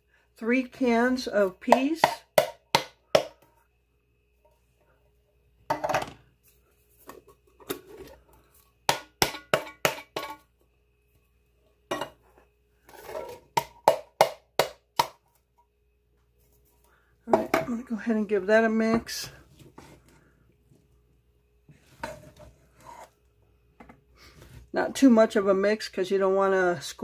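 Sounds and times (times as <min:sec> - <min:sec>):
metallic knocks on tin cans: 0:08.9 - 0:10.4.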